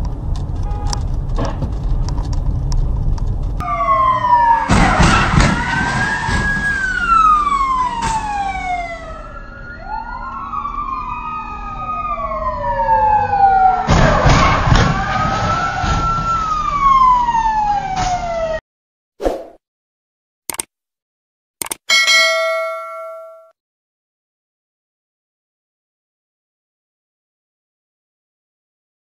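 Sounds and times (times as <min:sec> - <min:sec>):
low road rumble: 0:00.0 - 0:18.6
police sirens wailing: 0:03.6 - 0:18.6.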